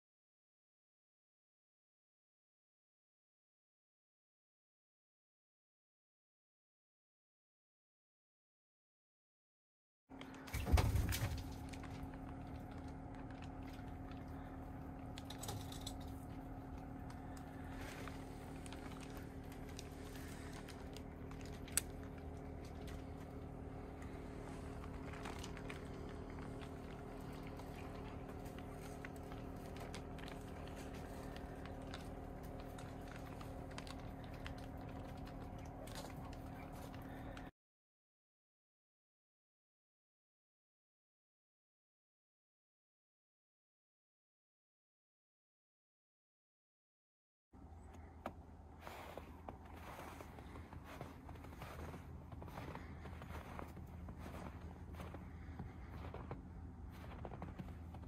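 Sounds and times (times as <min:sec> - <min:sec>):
steady low hum: 0:10.1 - 0:37.5, 0:47.6 - 0:58.0.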